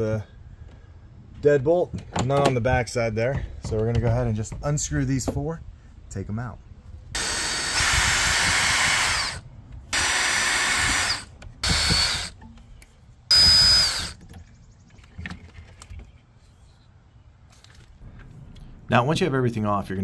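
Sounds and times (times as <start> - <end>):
power drill motor whining: 7.2 - 12.4, 13.3 - 14.2.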